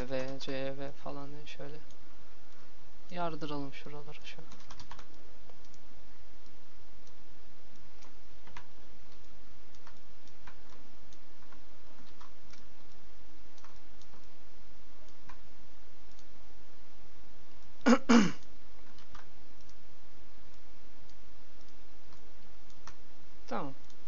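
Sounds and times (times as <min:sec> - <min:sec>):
computer mouse and keyboard clicks: 0:00.0 - 0:00.7, 0:04.2 - 0:05.8, 0:08.0 - 0:14.3, 0:15.0 - 0:15.5, 0:16.1 - 0:16.3, 0:18.4 - 0:19.8
steady low hum and hiss: 0:00.0 - 0:24.0.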